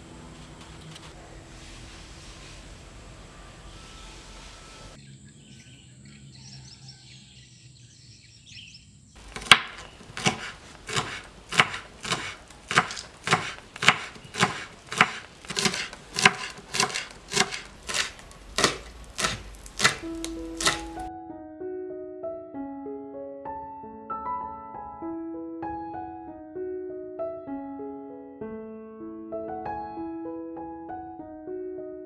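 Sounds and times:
knife chopping on wooden board: 0:09.2 - 0:21.1.

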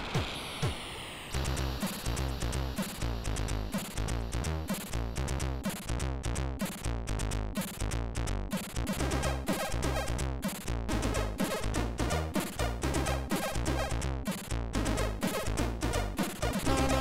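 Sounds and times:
chiptune music: 0:06.6 - 0:17.0.

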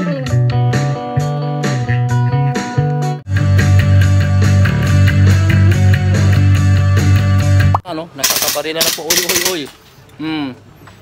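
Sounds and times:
electric bass: 0:00.0 - 0:07.8.

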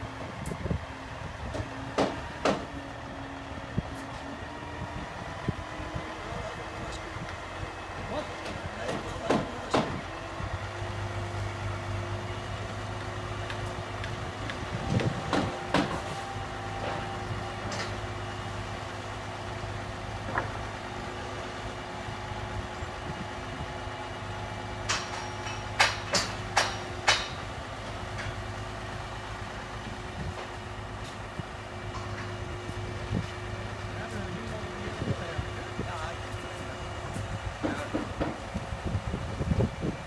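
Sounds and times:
diesel engine humming: 0:00.0 - 0:40.0
sharp knocks: 0:01.6 - 0:02.7, 0:08.9 - 0:10.0, 0:24.9 - 0:27.4.

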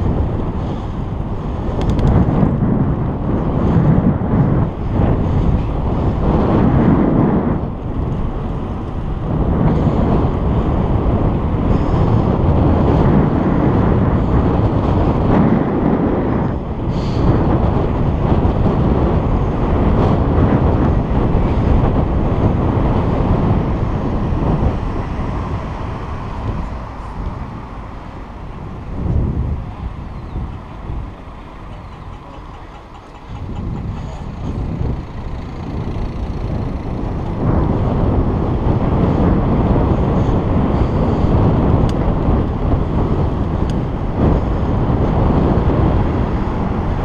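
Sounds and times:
tyre and road noise: 0:00.0 - 0:47.0
wind buffeting microphone: 0:00.0 - 0:47.0
sharp click: 0:01.8 - 0:02.2.

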